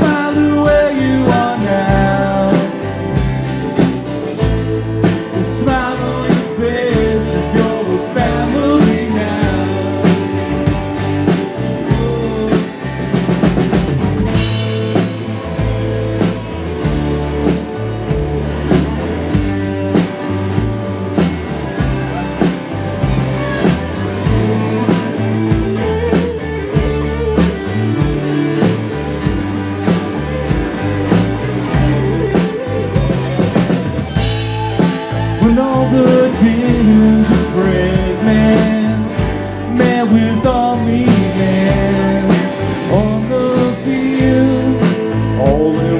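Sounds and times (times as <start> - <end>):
person singing lead vocal: 0.0 - 3.4, 4.8 - 13.4, 21.8 - 45.9
drum kit beat: 0.0 - 45.9
guitars and bass: 0.0 - 45.9.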